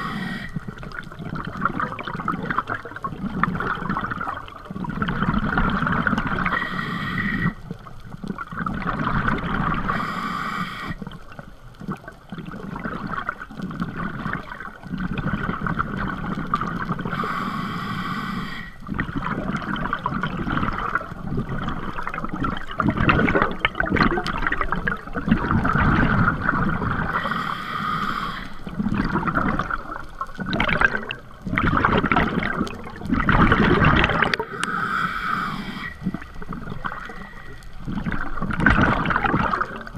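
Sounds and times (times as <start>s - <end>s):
regulator hissing inhalations: 0.0s - 0.6s, 6.5s - 7.6s, 9.9s - 11.0s, 17.1s - 18.8s, 27.1s - 28.7s, 34.4s - 36.2s
exhaled bubbles underwater: 0.0s - 39.9s.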